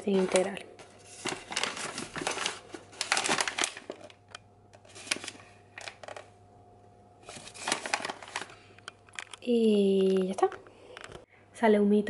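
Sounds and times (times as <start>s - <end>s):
paper bag crinkling: 0.0s - 6.3s, 7.2s - 9.4s.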